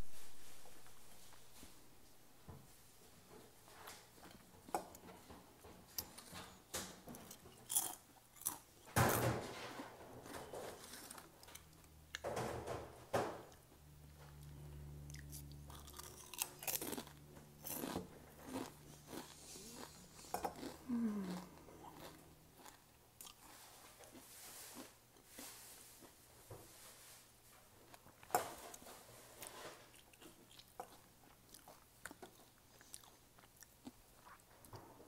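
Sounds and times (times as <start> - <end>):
chewing potato chips: 7.2 - 8.8, 14.2 - 26.1, 29.4 - 34.8.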